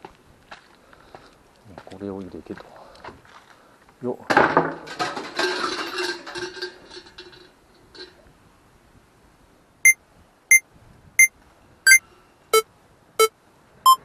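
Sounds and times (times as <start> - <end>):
short electronic beeps: 11.9 - 14.0.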